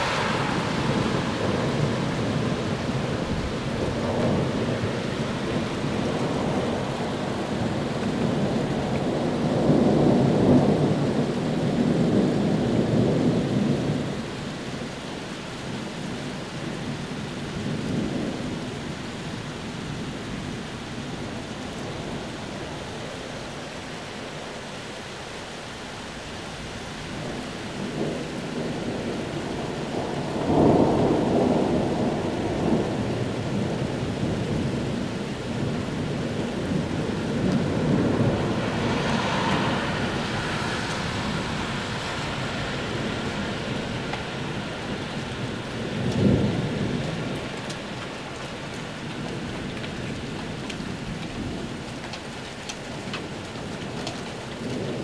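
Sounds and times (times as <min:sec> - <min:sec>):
sharp thunder clap: 0:00.0 - 0:04.6
thunder rumbling: 0:00.0 - 0:14.4, 0:27.0 - 0:55.0
steady rain: 0:00.0 - 0:55.0.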